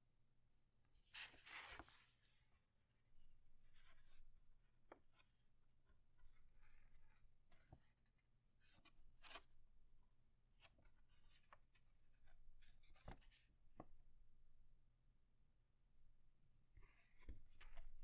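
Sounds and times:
paper rustling and crackling: 1.2 - 2.1.

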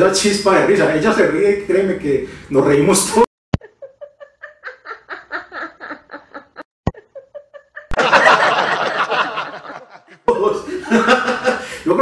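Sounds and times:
person laughing: 3.6 - 11.6.

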